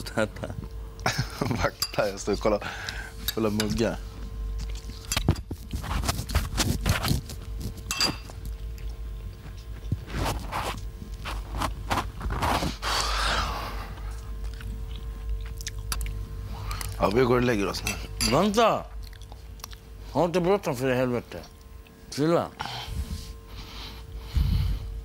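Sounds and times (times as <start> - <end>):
faint steady hum: 0.0 - 25.0
spoon clinking in a bowl: 7.9 - 8.3, 17.8 - 18.5.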